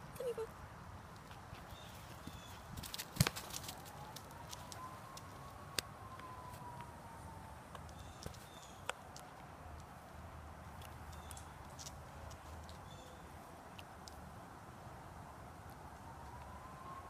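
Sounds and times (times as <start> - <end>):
faint distant siren wail: 2.3 - 11.2, 14.5 - 17.0.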